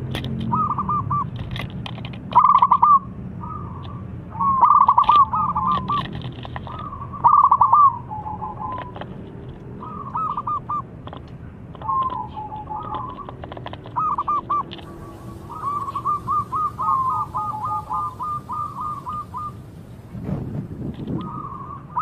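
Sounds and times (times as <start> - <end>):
dove cooing: 0.5 - 1.3, 2.3 - 9.1, 9.8 - 10.9, 11.8 - 19.7, 21.1 - 22.0.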